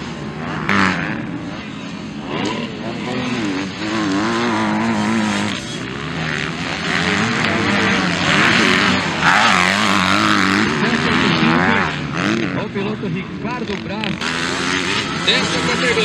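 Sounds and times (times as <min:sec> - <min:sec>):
motocross bikes revving: 0:00.0 - 0:16.0.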